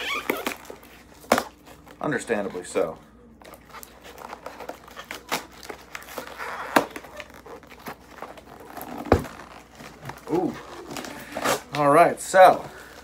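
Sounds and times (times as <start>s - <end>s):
tape tearing: 0.0s - 2.0s, 3.4s - 11.9s
cardboard flaps crinkling: 3.4s - 13.0s.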